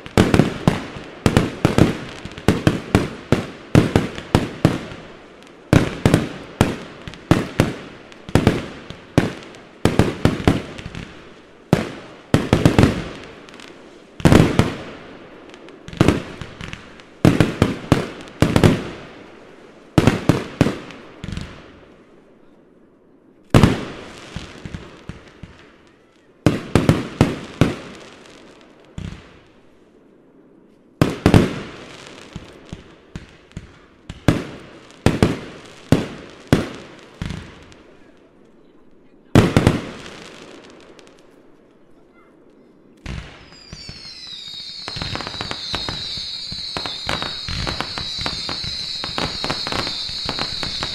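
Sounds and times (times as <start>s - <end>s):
fireworks loud bangs: 14.2s - 14.9s, 43.0s - 50.9s.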